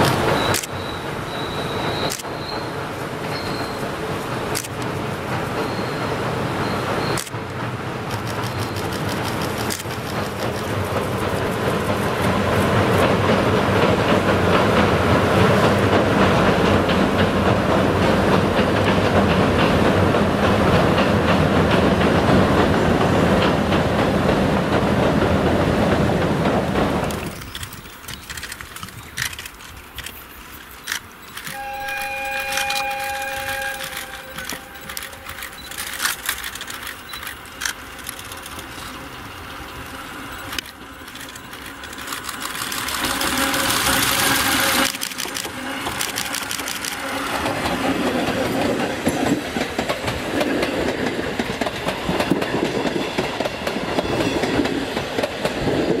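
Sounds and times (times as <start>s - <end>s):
train wheels clattering over rail joints: 0.0s - 56.0s
train horn two-note chord: 31.5s - 35.2s.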